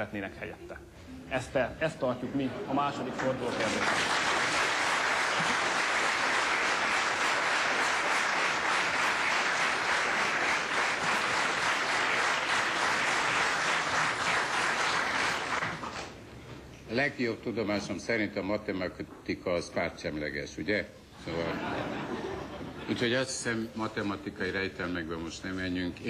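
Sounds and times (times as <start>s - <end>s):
audience applauding: 2.9s - 16.1s.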